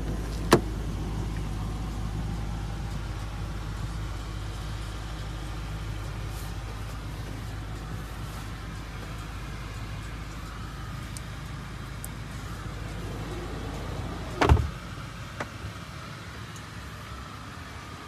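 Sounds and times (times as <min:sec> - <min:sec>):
low rumble: 0:00.0 - 0:15.8
car door shutting thump: 0:00.3 - 0:00.7, 0:14.3 - 0:14.8.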